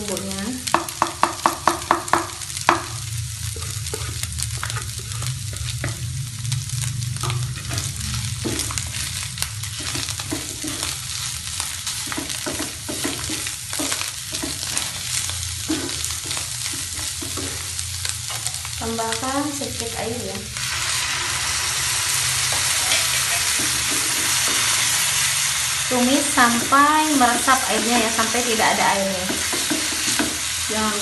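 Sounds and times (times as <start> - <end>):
food sizzling in a pan: 0.0 - 31.0
wooden spatula scraping and stirring: 7.2 - 18.6.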